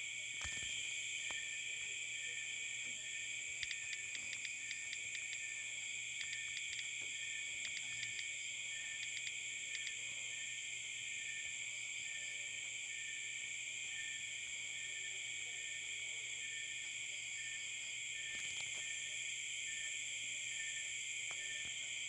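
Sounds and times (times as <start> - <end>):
insects chorus: 0.1 - 22.0
touchscreen typing clicks: 3.6 - 5.4, 6.2 - 6.9, 7.6 - 8.3, 9.0 - 10.0.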